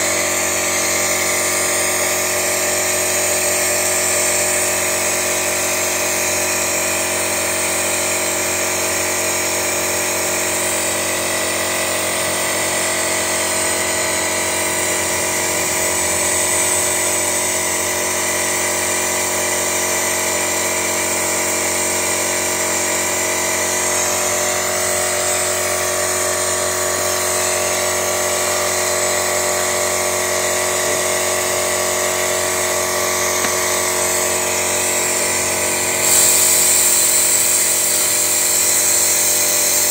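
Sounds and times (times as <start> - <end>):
small motor whining: 23.6 - 39.9
hiss: 33.2 - 39.9.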